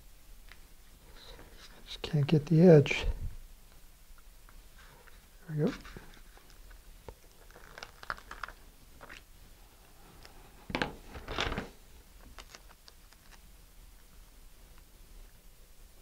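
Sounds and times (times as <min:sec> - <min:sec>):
paper rustling and crinkling: 0:04.8 - 0:09.3, 0:10.0 - 0:13.4.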